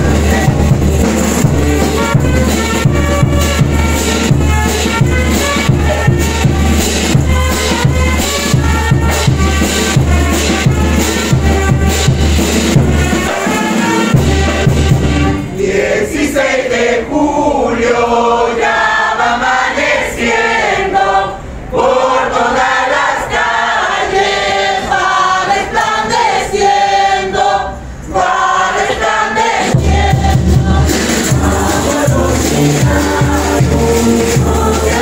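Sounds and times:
group of women singing a hymn: 0:00.0 - 0:06.6, 0:15.5 - 0:35.0
drum beating: 0:00.0 - 0:15.6, 0:28.8 - 0:35.0.

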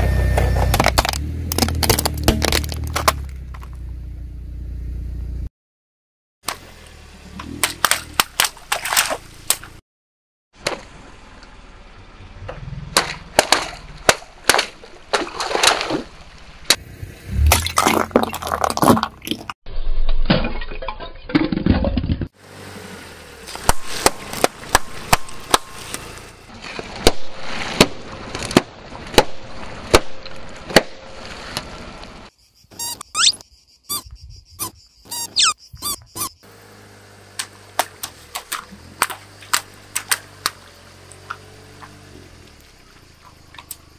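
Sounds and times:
objects crunching under car tyre: 0:00.3 - 0:04.0, 0:12.9 - 0:19.6, 0:23.4 - 0:32.3
rubber ducks squeaking: 0:32.7 - 0:36.4.

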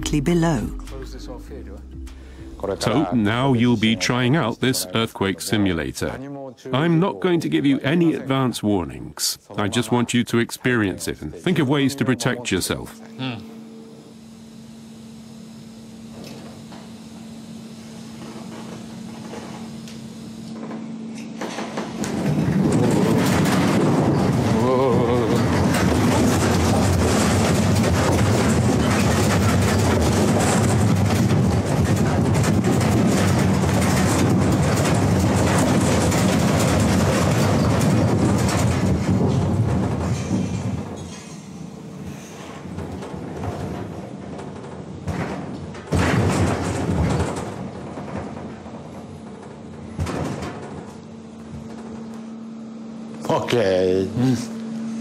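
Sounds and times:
low machine hum: 0:00.0 - 0:55.0
shaking rumble with rattling: 0:21.6 - 0:52.2.

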